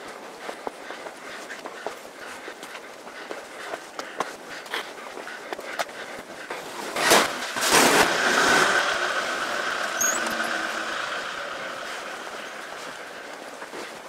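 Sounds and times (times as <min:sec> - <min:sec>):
truck passing close: 0:07.1 - 0:14.0
high whine: 0:08.6 - 0:14.0.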